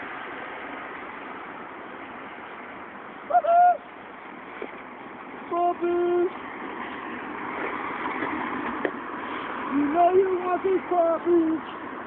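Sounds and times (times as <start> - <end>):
traffic noise: 0.0 - 12.0.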